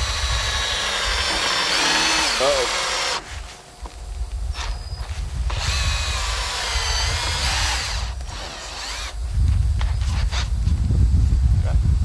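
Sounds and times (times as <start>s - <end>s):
cordless drill drilling into wood: 0.0s - 3.3s, 4.5s - 9.2s, 9.8s - 10.5s.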